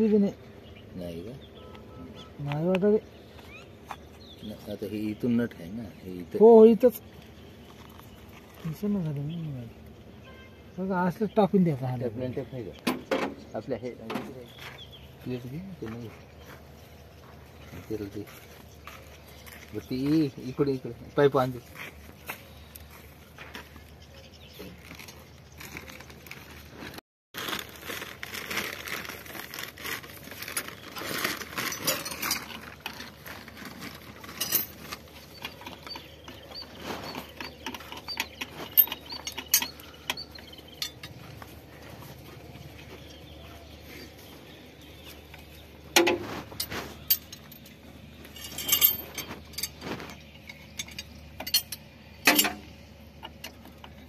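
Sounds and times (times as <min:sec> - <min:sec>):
metal fittings clinking: 0:31.6 - 0:32.7, 0:34.2 - 0:41.3, 0:46.0 - 0:52.6.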